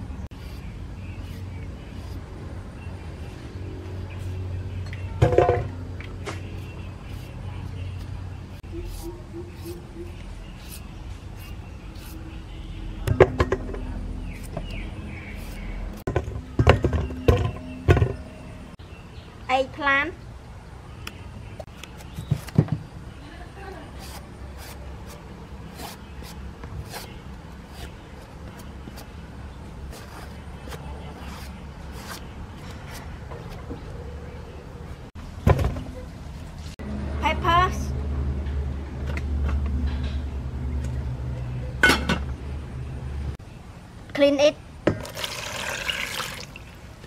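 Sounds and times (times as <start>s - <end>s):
peeler scraping cucumber: 0.3s - 2.3s, 6.4s - 12.4s, 14.2s - 16.0s, 23.9s - 29.2s, 29.8s - 33.7s
vegetable peeler scraping skin: 24.0s - 28.0s.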